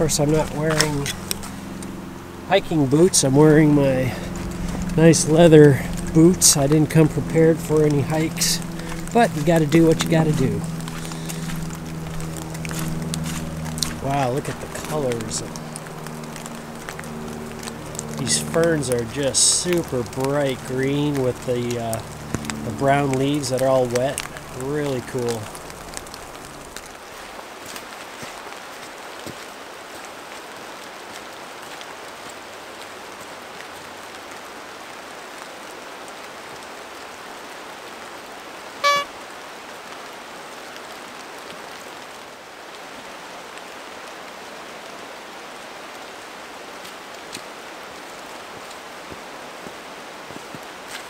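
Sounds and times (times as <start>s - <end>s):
footsteps on trail: 0.0s - 33.9s, 46.8s - 51.0s
short high beep: 38.8s - 39.1s.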